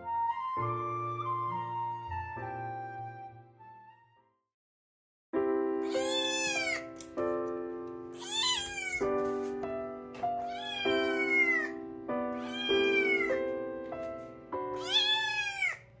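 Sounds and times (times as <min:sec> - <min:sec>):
background music of held chords: 0:05.4 - 0:15.5
kitten meowing: 0:05.8 - 0:07.0, 0:08.2 - 0:09.1, 0:10.4 - 0:11.8, 0:12.4 - 0:13.4, 0:14.7 - 0:15.9.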